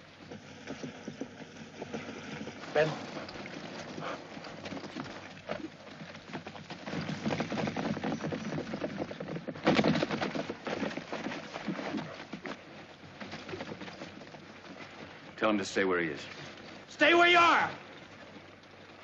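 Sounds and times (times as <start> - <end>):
horses galloping on stony ground: 0.0 - 19.0.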